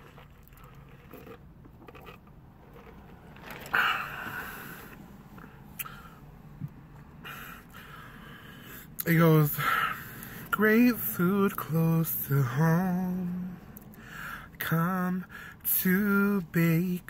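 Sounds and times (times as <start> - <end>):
paper cup scraping rustle: 2.7 - 4.1.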